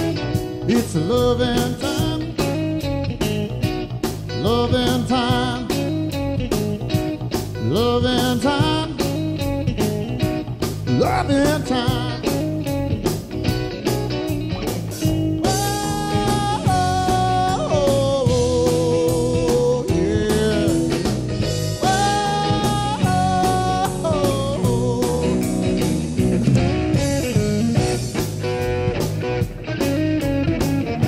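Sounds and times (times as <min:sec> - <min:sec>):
bass guitar: 0:00.0 - 0:31.0
electric guitar lead: 0:00.0 - 0:31.0
steady drum beat: 0:00.0 - 0:31.0.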